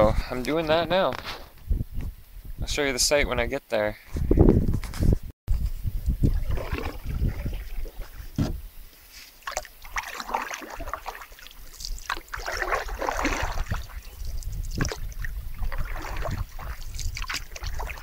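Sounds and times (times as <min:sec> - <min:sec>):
wind rumble on microphone: 0:00.0 - 0:03.5, 0:04.1 - 0:08.9, 0:11.6 - 0:18.0
paddle splashing through water: 0:06.3 - 0:18.0.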